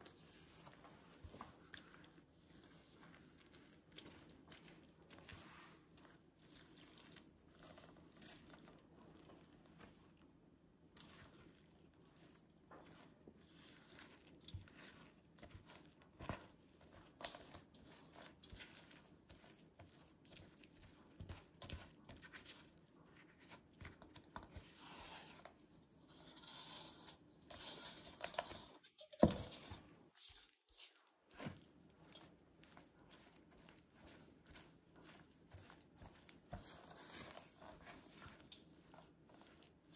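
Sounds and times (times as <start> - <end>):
spatula scraping dough in steel bowl: 12.1 - 39.9.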